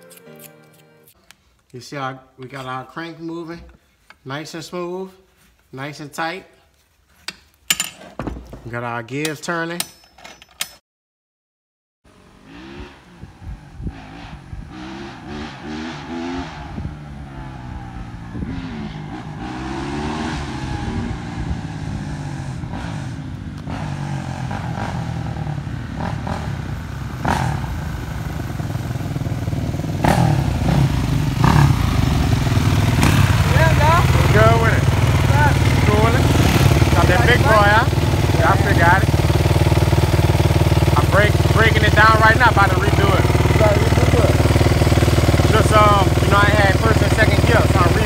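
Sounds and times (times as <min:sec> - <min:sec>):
dirt bike engines revving: 0:12.1 - 0:48.0.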